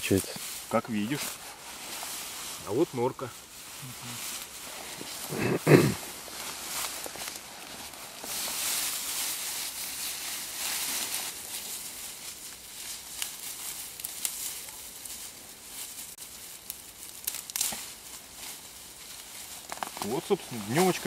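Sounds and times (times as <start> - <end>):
grass rustling and tearing: 0.0 - 21.0
stems snapping: 12.8 - 15.2, 16.6 - 21.0.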